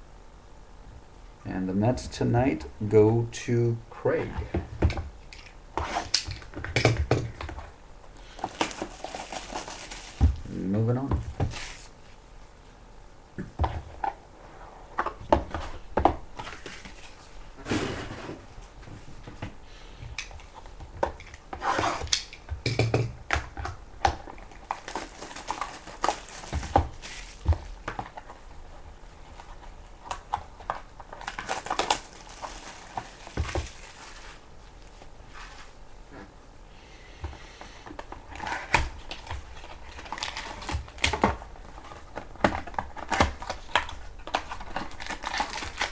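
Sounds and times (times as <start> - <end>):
plastic wrap crinkling: 8.2 - 10.7, 11.3 - 12.2, 24.1 - 35.8, 38.0 - 45.9.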